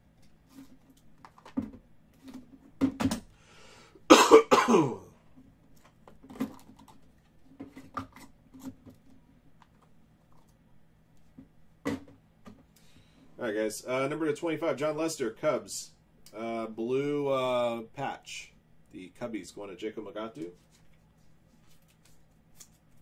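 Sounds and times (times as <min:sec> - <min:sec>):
faint steady hum: 0:00.0 - 0:23.0
man coughing: 0:04.1 - 0:05.1.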